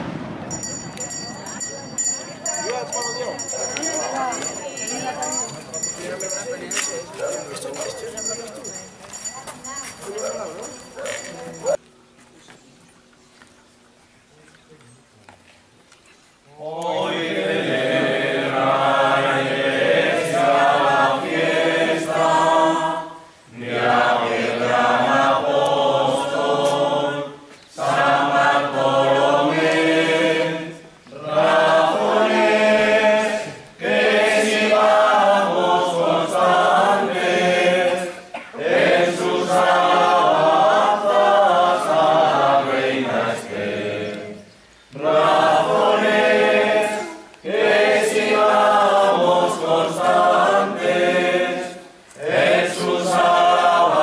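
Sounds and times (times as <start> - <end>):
group singing unaccompanied: 16.6 - 54.0.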